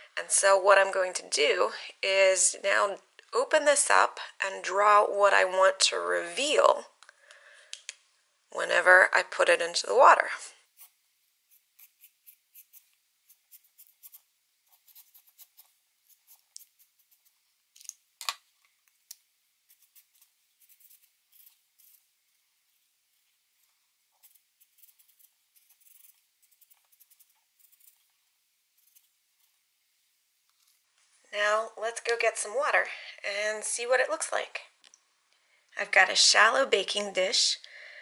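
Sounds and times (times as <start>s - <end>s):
markers scratching on paper towel: 10.7s - 17.4s, 19.7s - 22.1s, 24.1s - 28.1s, 28.8s - 29.6s.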